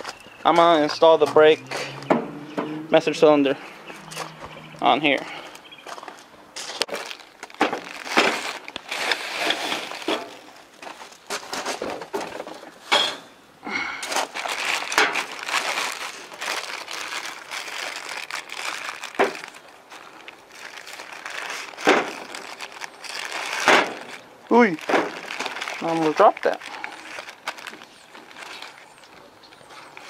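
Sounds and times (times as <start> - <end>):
plastic bags crinkling: 6.6 - 12.5, 14.0 - 30.0.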